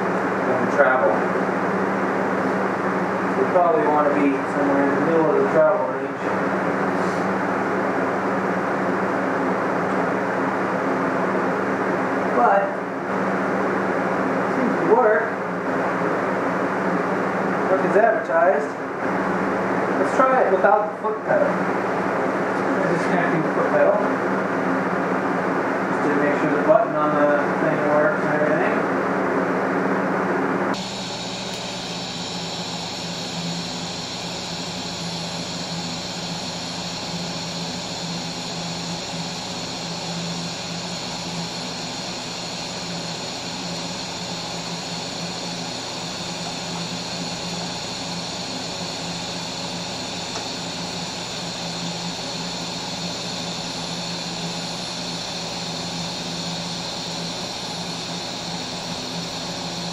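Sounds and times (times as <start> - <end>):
welding arc hissing and humming: 30.7 - 59.9.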